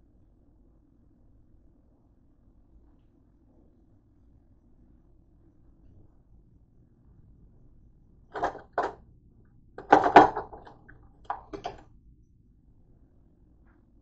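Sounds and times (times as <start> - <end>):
dishes clattering in a drying rack: 8.4 - 9.0, 9.8 - 11.8.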